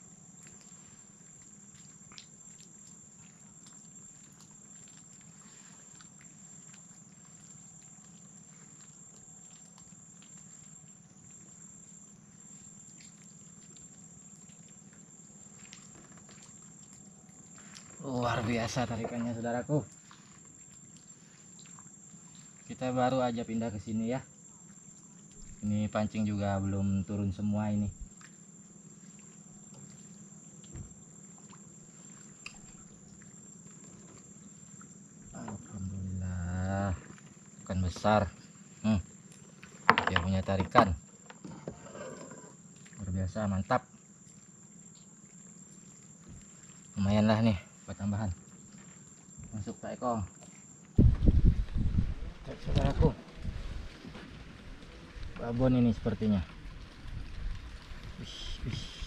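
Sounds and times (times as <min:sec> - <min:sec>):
high-pitched insect drone: 0:21.3 - 0:50.9
low hum: 0:51.0 - 0:59.0.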